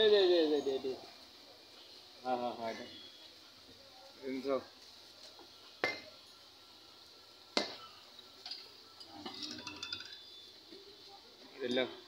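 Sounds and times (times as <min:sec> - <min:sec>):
light ringing metal clinks: 0:07.7 - 0:10.5.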